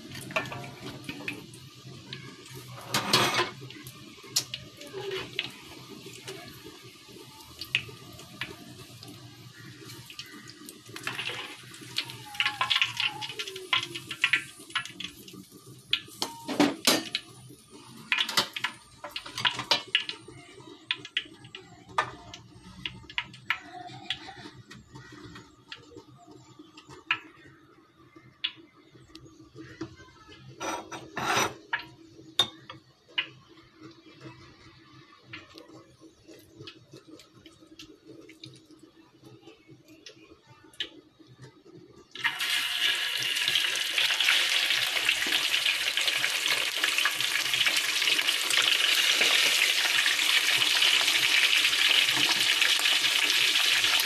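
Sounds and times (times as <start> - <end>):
oil sizzling: 0.0 - 23.6, 30.5 - 54.0
metal utensils clinking on a pan: 0.2 - 1.2, 2.6 - 3.6, 18.1 - 20.1, 30.6 - 32.8.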